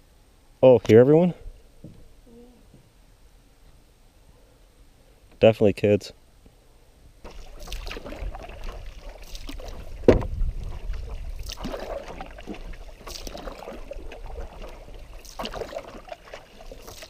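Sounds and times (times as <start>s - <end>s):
paddle strokes in water: 7.2s - 17.0s
wind on microphone: 7.4s - 15.2s
loud thump: 10.0s - 10.4s.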